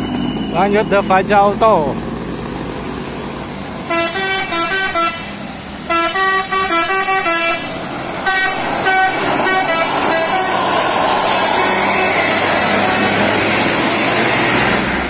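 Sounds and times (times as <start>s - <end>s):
bus engine and road noise: 0.0s - 15.0s
bus horn playing melodic notes: 3.8s - 13.6s.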